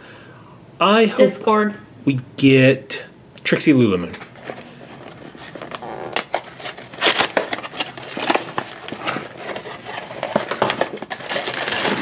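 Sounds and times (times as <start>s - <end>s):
cardboard box tearing: 5.3s - 12.0s.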